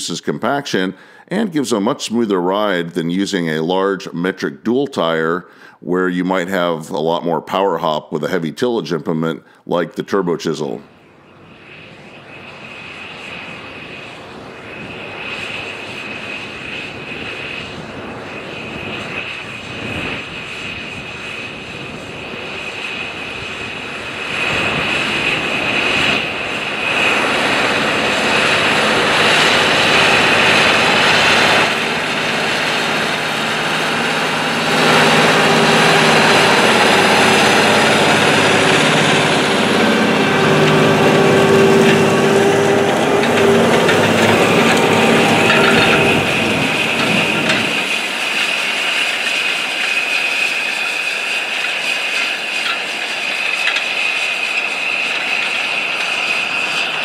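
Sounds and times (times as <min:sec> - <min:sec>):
tractor diesel engine under load: 0:23.8 - 0:57.0.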